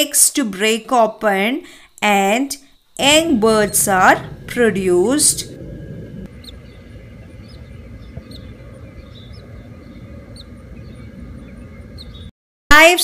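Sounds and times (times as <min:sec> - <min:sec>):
nestlings peeping: 0:01.8 - 0:12.3
steady low rumble: 0:03.0 - 0:12.3.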